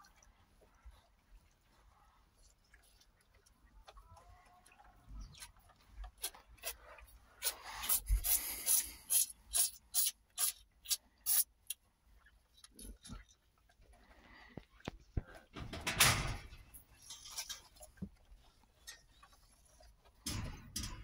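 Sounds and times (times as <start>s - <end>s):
calf sucking from bottle teat: 0.0s - 15.3s.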